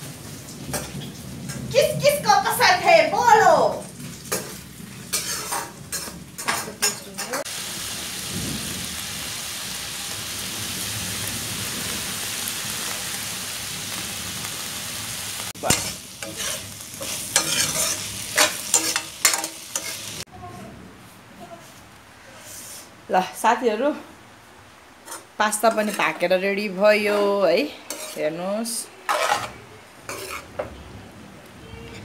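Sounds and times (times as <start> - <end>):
vegetables sizzling in oil: 0.0 - 20.3, 25.0 - 30.7
metal spoon scraping a wok: 4.3 - 7.5, 15.6 - 20.2, 25.0 - 26.2, 27.0 - 30.6.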